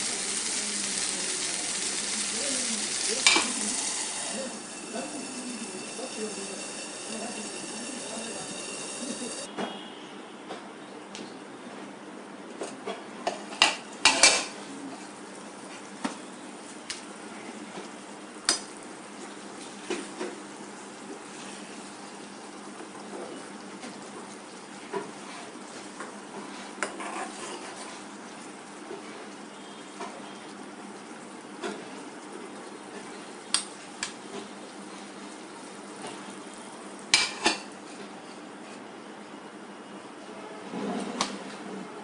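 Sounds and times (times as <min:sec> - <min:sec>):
curry simmering: 0:00.0 - 0:09.5, 0:14.1 - 0:38.9
spoon knocking metal pan: 0:03.2 - 0:09.4.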